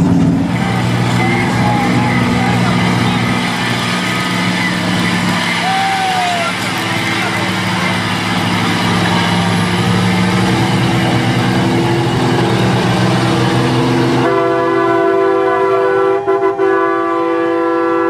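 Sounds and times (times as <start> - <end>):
truck air horn blast: 12.4 - 18.0.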